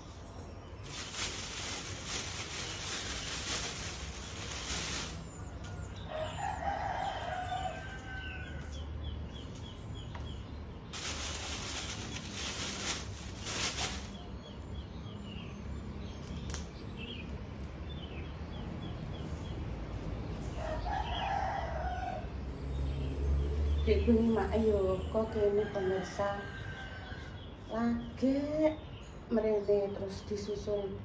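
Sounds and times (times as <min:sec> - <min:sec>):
rooster crowing: 0:05.8 - 0:08.7, 0:20.6 - 0:22.4, 0:25.6 - 0:27.4.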